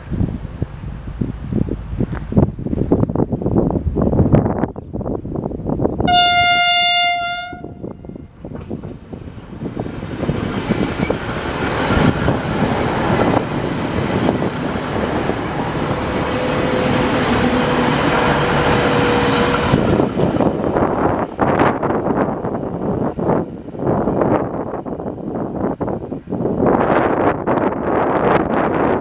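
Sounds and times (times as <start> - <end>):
train wheels rushing on rail: 0.0 - 29.0
train horn note: 6.1 - 8.3
diesel engines: 8.4 - 24.3.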